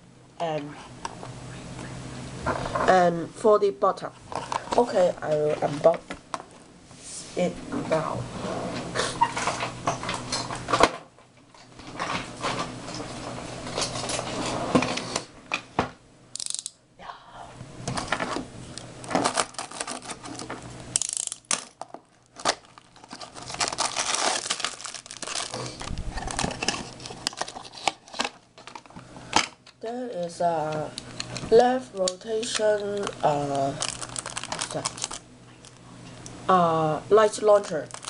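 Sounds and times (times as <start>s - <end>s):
hard plastic pieces clicking: 16.4s - 16.8s, 19.1s - 29.6s
packaging rustling and crinkling: 19.0s - 20.6s, 21.4s - 29.0s, 32.4s - 35.8s, 37.7s - 38.0s.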